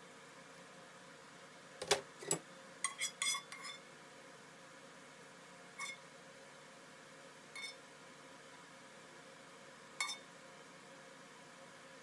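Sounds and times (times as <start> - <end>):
metal tongs clinking on plate: 10.0 - 10.3.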